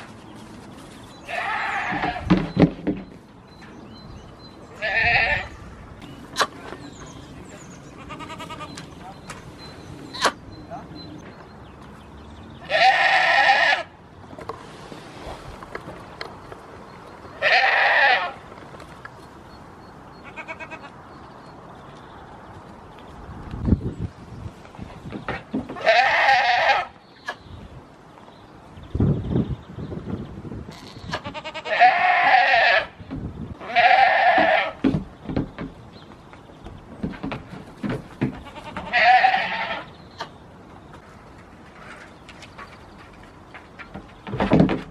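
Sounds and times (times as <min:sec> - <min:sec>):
goat bleating: 0:01.3 - 0:02.3, 0:04.8 - 0:05.6, 0:07.9 - 0:08.8, 0:12.6 - 0:13.9, 0:17.4 - 0:18.4, 0:20.2 - 0:20.9, 0:25.8 - 0:26.9, 0:30.7 - 0:33.0, 0:33.6 - 0:34.8, 0:38.4 - 0:39.9.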